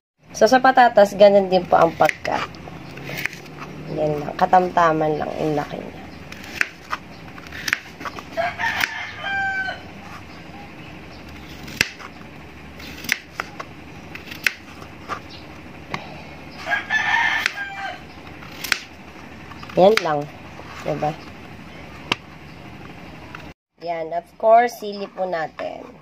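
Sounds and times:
rooster crowing: 8.3 - 10.1, 16.5 - 18.2.

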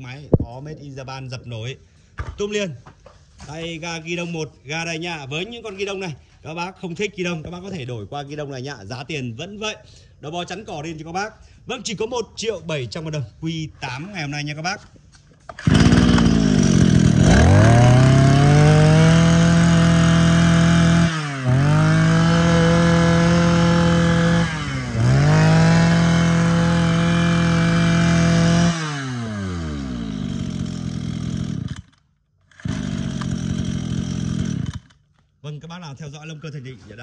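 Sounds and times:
brush cutter engine revving: 15.4 - 35.0.

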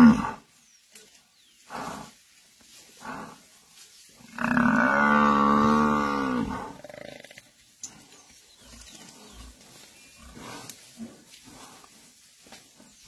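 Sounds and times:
quiet rustle: 0.5 - 5.0, 6.8 - 13.0
lions growling faintly: 5.6 - 13.0.

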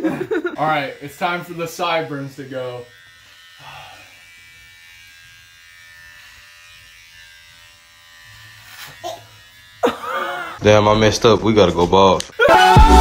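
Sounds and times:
electric shaver buzzing: 0.0 - 11.1.

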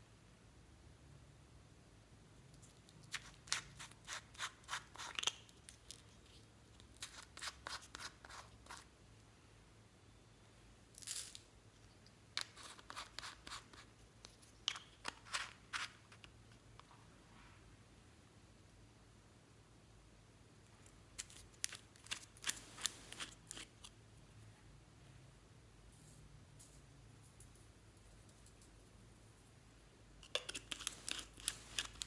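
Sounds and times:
plastic screw caps clicking: 30.2 - 32.0.

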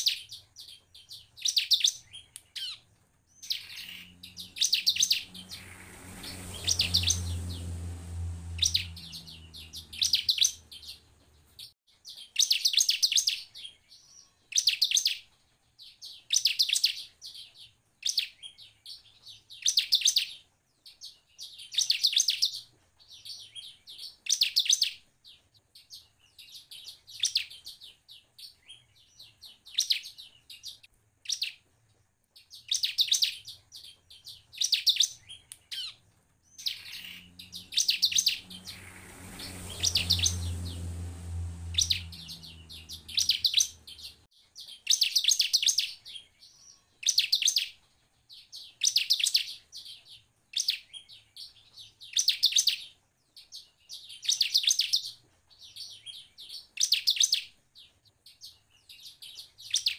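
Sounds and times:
bird singing high chattering: 0.0 - 11.7, 32.5 - 44.2.

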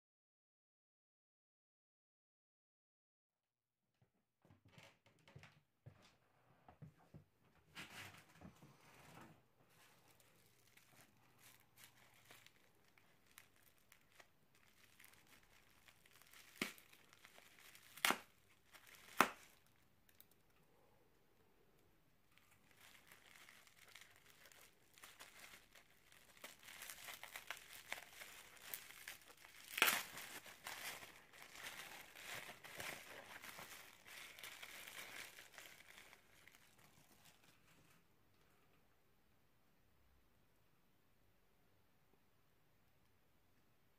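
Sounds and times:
bubble wrap crinkling: 9.6 - 20.6, 22.2 - 38.0
bubble wrap snapping: 9.8 - 20.5, 22.3 - 37.6.

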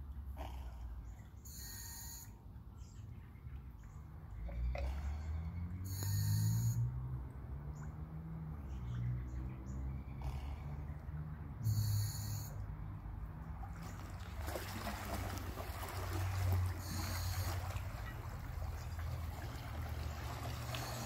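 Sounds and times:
low exhalation through regulator: 4.6 - 6.7, 16.8 - 17.8, 20.6 - 21.0.

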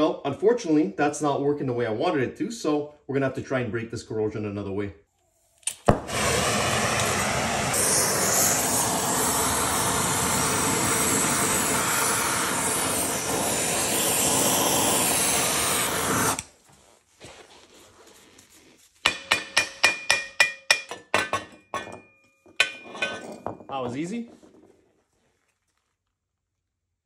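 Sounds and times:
torch flame hissing: 5.7 - 16.6
ringing metal-on-metal strikes: 19.1 - 23.2.

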